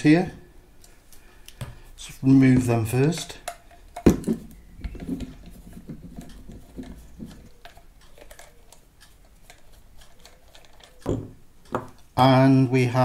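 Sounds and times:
screwdriver clicking and scraping: 4.9s - 11.8s.

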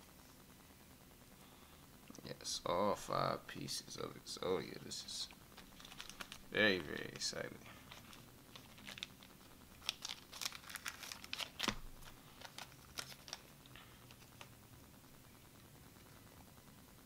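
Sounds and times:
plastic card sleeves crinkling: 5.6s - 14.5s.

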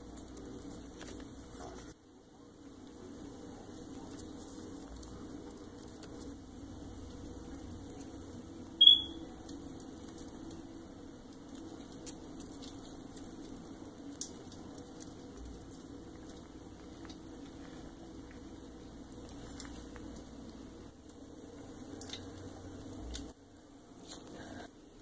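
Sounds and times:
short high chirp: 8.8s - 9.2s.

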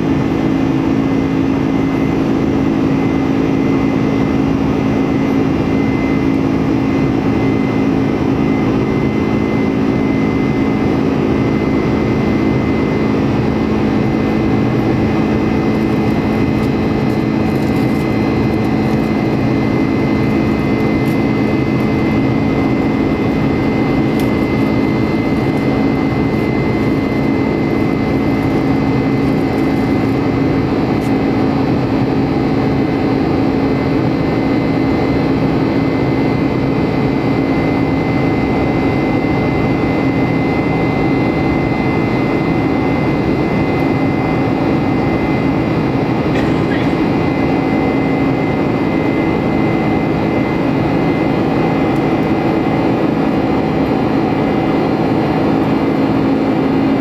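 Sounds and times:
low hum: 0.0s - 34.1s
jet engine drone in cabin: 0.0s - 57.0s.

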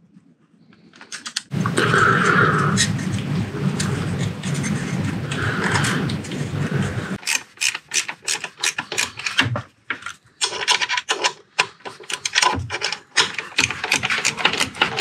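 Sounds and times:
metal scraping: 1.5s - 9.4s
hand ratchet clicking: 7.2s - 9.4s, 10.4s - 15.0s.

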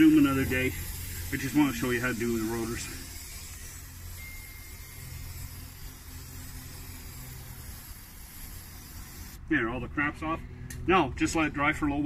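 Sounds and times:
aerosol can spraying: 0.0s - 9.4s.

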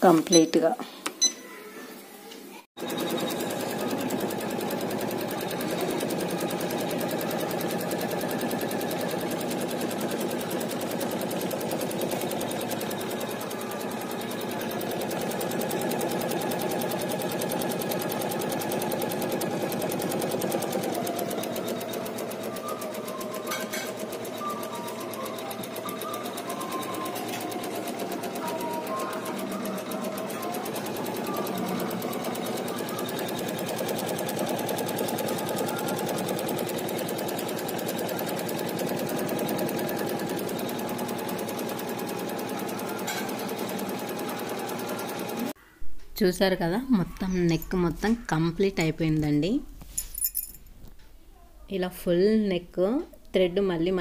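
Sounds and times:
motor hum: 2.8s - 45.5s
embroidery machine needle chatter: 2.8s - 45.6s.

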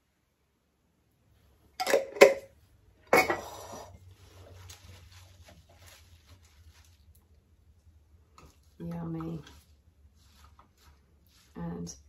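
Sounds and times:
lettuce leaves rustling: 4.0s - 12.0s.

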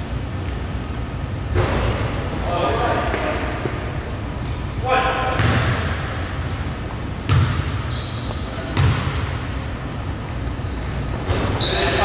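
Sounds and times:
basketball bouncing on gym floor: 5.3s - 6.1s, 7.2s - 9.4s
short high squeaks: 6.4s - 7.1s, 7.8s - 8.7s, 10.6s - 12.0s.

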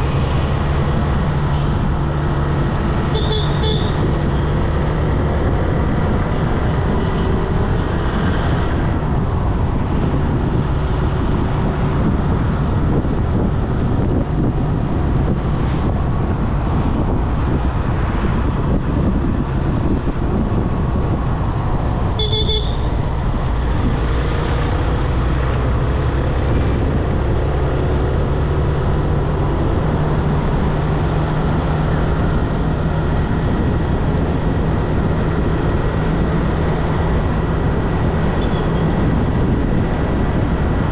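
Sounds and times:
low engine hum: 0.0s - 40.9s
road and traffic noise: 0.0s - 40.9s
car horn toot: 3.1s - 4.0s, 22.2s - 22.9s.

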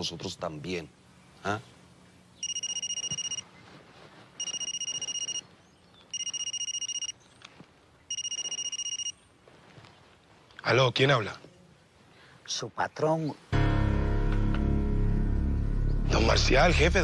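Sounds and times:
electronic telephone ringing: 2.4s - 3.5s, 4.4s - 5.5s, 6.1s - 7.2s, 8.1s - 9.2s.

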